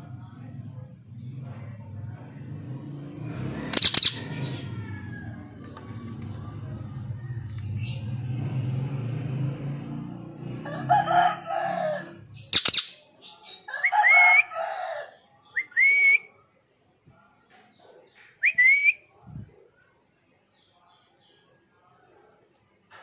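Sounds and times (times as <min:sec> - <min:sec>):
parrot harsh calls: 0:03.7 - 0:04.6.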